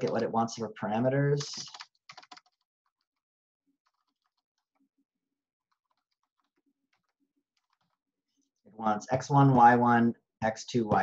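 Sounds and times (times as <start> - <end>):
computer keyboard clicks: 1.4 - 2.6.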